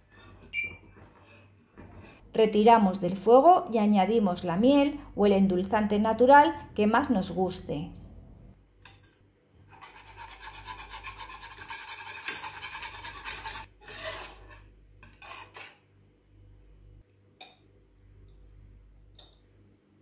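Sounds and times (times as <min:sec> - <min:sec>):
whisk scraping a saucepan: 0:00.0 - 0:02.2, 0:09.7 - 0:15.8.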